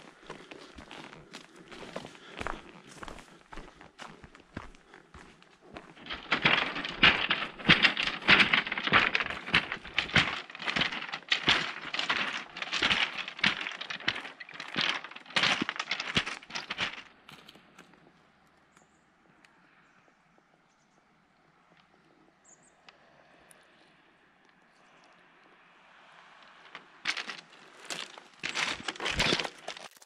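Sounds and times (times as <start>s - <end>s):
footsteps on loose ground: 0.0s - 18.0s, 26.7s - 30.0s.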